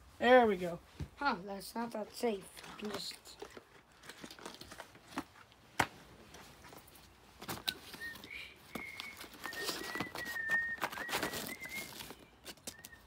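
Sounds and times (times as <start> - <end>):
plastic packaging crinkling: 2.4 - 5.6, 6.7 - 13.0
thin high whistle: 7.6 - 13.0.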